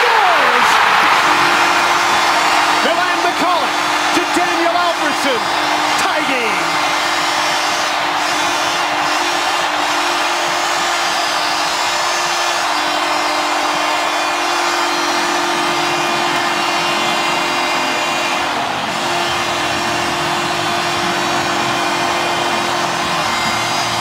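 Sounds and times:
arena crowd cheering: 0:00.0 - 0:24.0.

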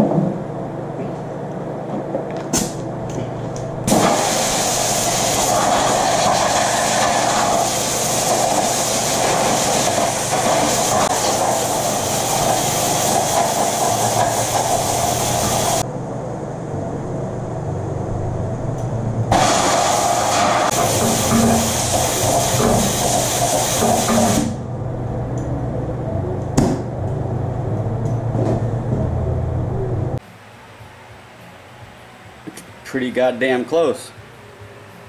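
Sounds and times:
compressed air hissing: 0:03.9 - 0:15.8, 0:19.3 - 0:24.5.

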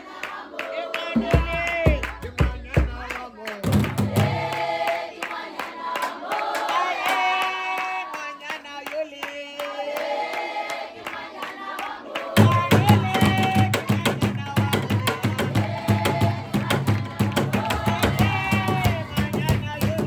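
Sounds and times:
group singing a chant: 0:00.0 - 0:20.0
hand clapping: 0:00.1 - 0:20.0
drums beaten with sticks: 0:01.1 - 0:04.5, 0:12.4 - 0:20.0.

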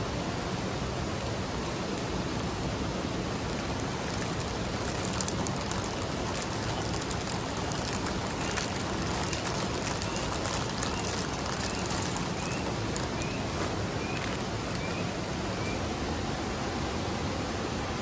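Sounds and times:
steady rushing noise: 0:00.0 - 0:18.0
plastic bag crinkling: 0:03.4 - 0:15.8
dry pasta poured into water: 0:03.6 - 0:14.8.

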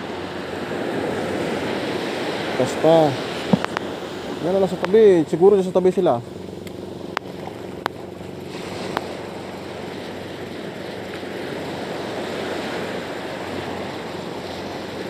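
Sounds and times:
small waves washing up beach: 0:00.0 - 0:15.0.

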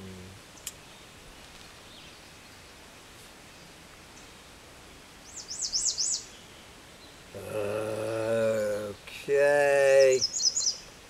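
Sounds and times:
songbird singing high notes: 0:05.2 - 0:07.2, 0:08.6 - 0:11.0
faint bird chirps: 0:05.2 - 0:11.0.

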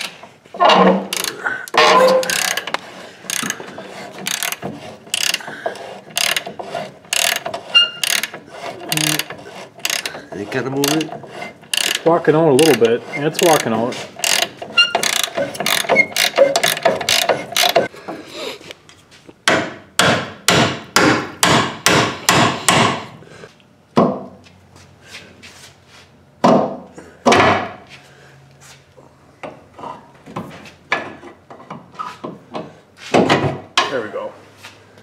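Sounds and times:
ratchet wrench clicking: 0:01.1 - 0:01.4, 0:02.2 - 0:03.6, 0:04.2 - 0:05.4, 0:06.2 - 0:06.5, 0:07.1 - 0:10.2, 0:11.7 - 0:17.9.

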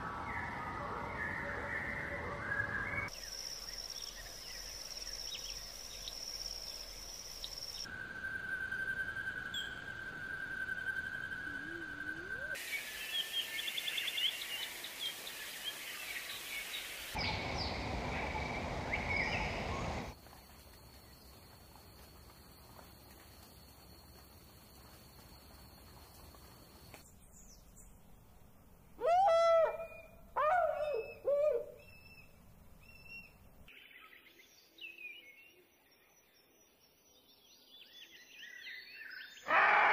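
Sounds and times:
birds chirping and singing: 0:29.0 - 0:33.3.

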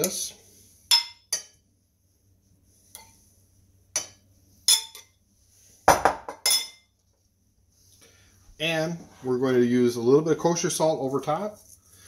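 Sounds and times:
metal spoon clinking on dishes: 0:00.9 - 0:01.6, 0:04.0 - 0:05.2, 0:06.0 - 0:06.9.

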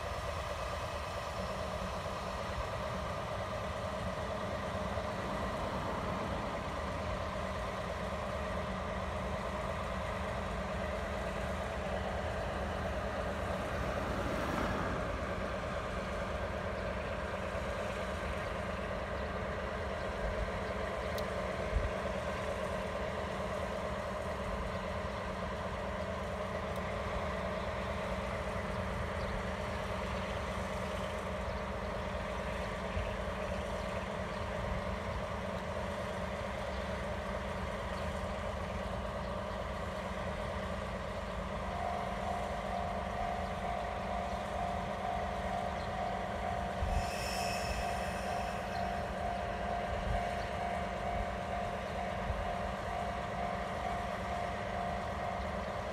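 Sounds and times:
diesel locomotive engine running: 0:00.0 - 0:55.9
steady whine: 0:00.0 - 0:55.9
high squeal: 0:43.8 - 0:50.9.

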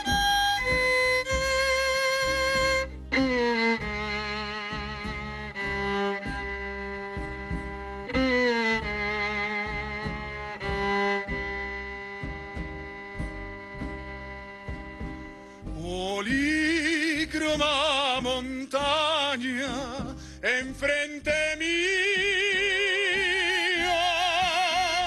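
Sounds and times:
string ensemble chords: 0:00.0 - 0:25.0
man singing with vibrato: 0:15.7 - 0:25.0.

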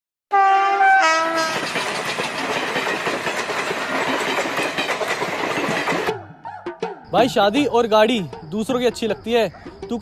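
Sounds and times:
train horn: 0:00.3 - 0:01.7
train coaches rushing past: 0:01.0 - 0:06.3
wheels clicking over rails: 0:01.4 - 0:06.1.

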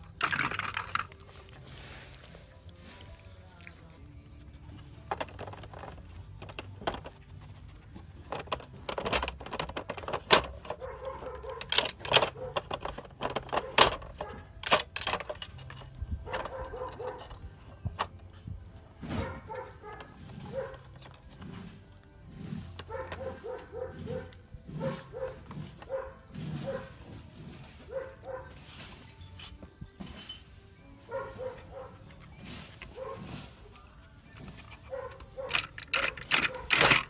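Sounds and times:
plastic toy clicking and clattering: 0:00.0 - 0:01.3, 0:05.0 - 0:07.2, 0:08.0 - 0:18.3, 0:33.7 - 0:37.0.

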